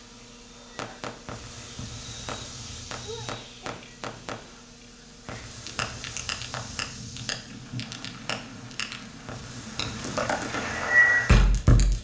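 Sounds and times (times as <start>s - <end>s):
low hum: 0.0s - 11.6s
irregular clicks and ticks: 5.6s - 9.4s.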